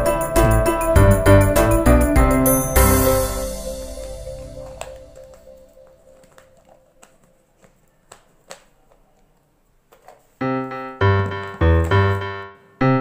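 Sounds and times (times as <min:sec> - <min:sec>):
keyboard music with piano chords: 0:00.0 - 0:07.0, 0:10.4 - 0:13.0.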